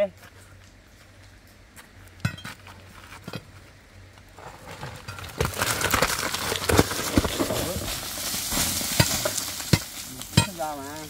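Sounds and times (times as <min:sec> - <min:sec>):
crackling rush of tumbling rubble: 0:00.0 - 0:11.0
rock knocks: 0:05.0 - 0:10.7.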